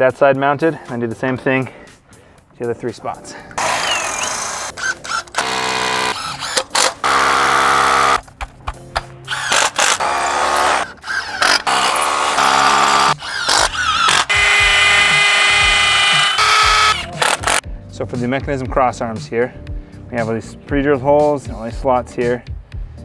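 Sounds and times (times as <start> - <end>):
power drill drilling into concrete: 3.6 - 8.2, 9.3 - 17.6.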